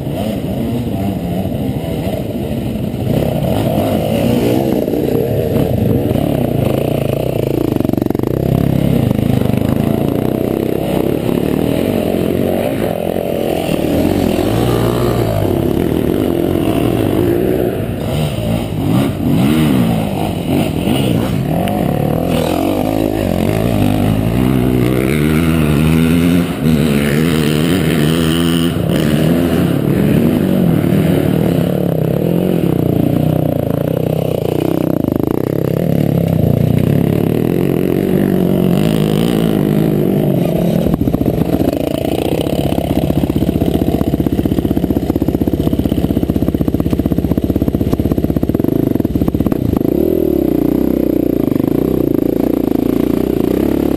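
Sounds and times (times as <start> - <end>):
dirt bike engines revving: 0.0 - 53.9.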